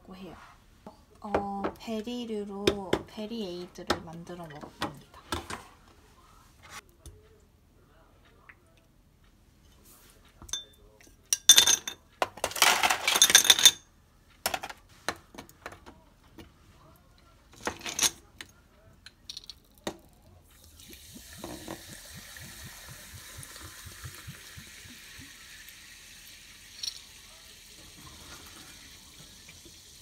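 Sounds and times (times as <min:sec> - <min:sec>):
spoon clinking against glass: 0:10.5 - 0:12.0, 0:26.8 - 0:27.1
soda water pouring and fizzing: 0:20.7 - 0:30.0.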